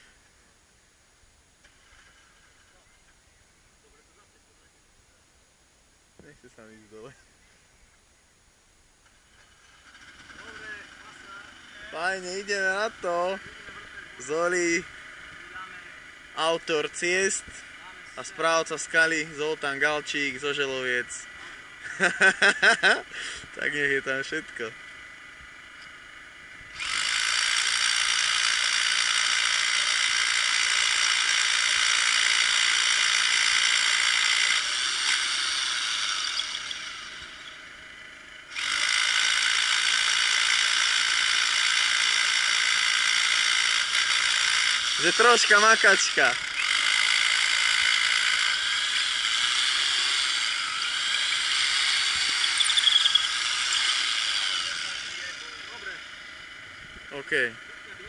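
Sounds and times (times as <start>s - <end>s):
hammer drill boring into rock: 9.3s - 21.1s, 25.5s - 56.6s.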